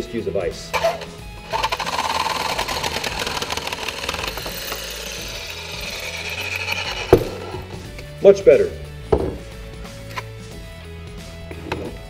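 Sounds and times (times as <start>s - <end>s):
reciprocating saw cutting pipe: 0.7s - 8.0s.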